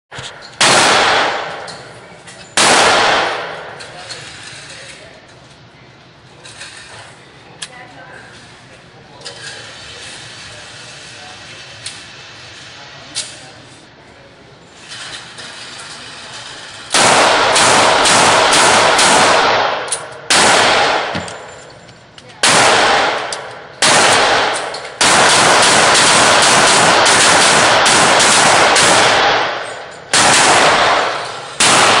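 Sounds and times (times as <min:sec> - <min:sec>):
pistol shots echoing indoors: 0:00.4 - 0:01.9, 0:02.6 - 0:04.1, 0:16.9 - 0:21.6, 0:22.4 - 0:32.0.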